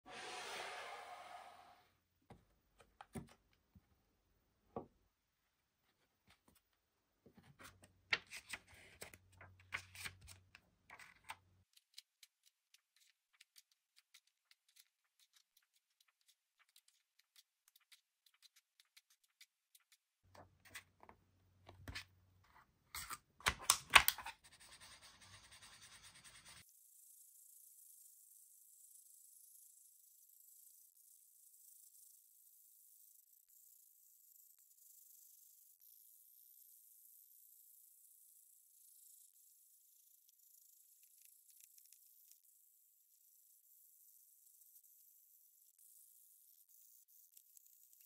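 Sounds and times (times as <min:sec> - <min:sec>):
marker scratching on paper: 0:09.7 - 0:21.0, 0:24.2 - 0:26.7.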